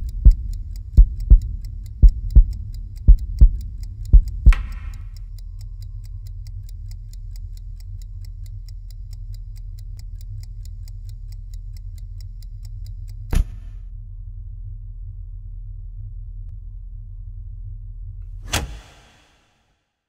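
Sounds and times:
chess clock ticking fast: 0.0 - 13.3
low steady drone: 0.0 - 18.4.

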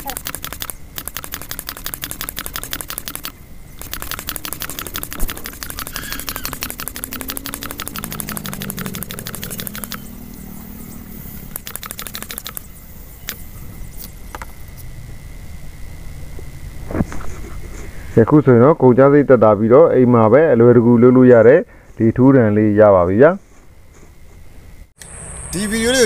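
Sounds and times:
hand air pump clicking: 0.0 - 10.4, 11.5 - 14.2.

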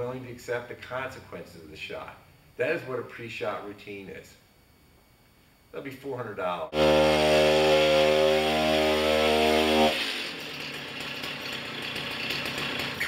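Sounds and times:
chainsaw running at high revs: 6.7 - 13.0.

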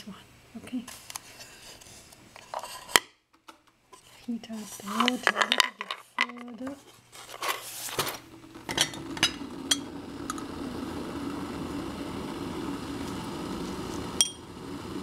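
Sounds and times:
kettle heating water: 8.0 - 15.0.

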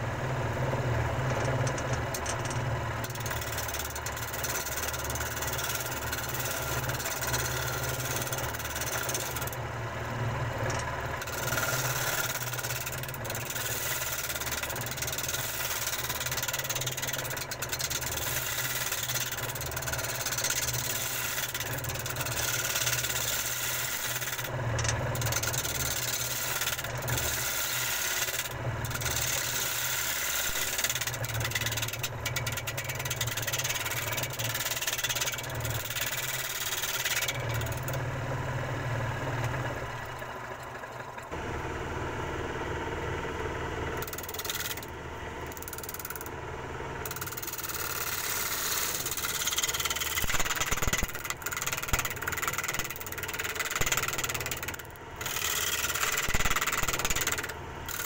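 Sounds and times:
power tool motor hum: 11.2 - 38.1
wood being cut hiss: 19.9 - 24.5, 25.8 - 31.0.

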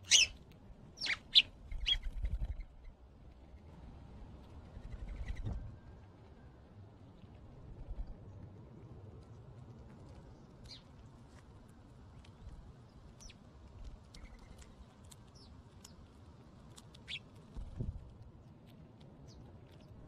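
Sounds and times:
short high bird chirps: 0.1 - 0.3
doves pecking birdseed clicks: 7.0 - 20.0.

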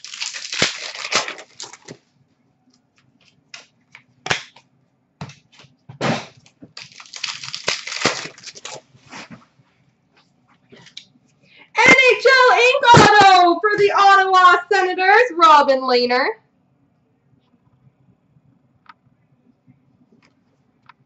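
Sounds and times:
wrappers tearing and crinkling: 0.0 - 2.0, 6.4 - 9.3
cards snapping and clicking: 3.6 - 4.6.

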